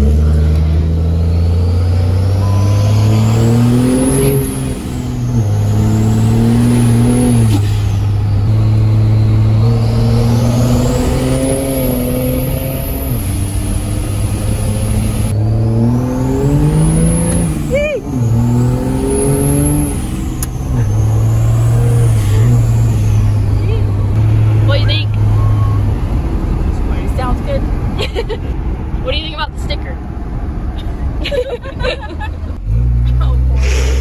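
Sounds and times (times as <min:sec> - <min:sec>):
diesel engine accelerating: 0:00.0 - 0:34.0.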